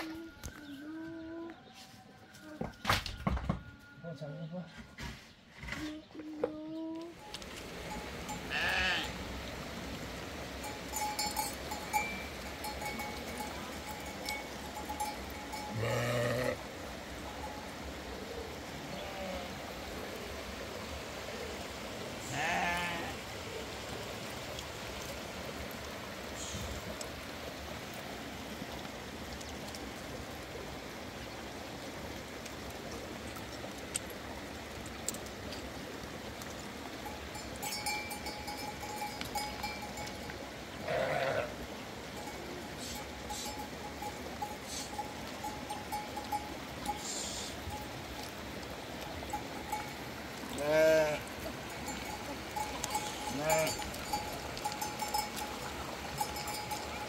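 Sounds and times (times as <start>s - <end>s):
livestock bleating: 8.5s - 9.2s, 15.7s - 16.6s, 18.8s - 19.5s, 22.2s - 23.2s, 40.8s - 41.6s, 50.6s - 51.3s, 53.0s - 53.8s.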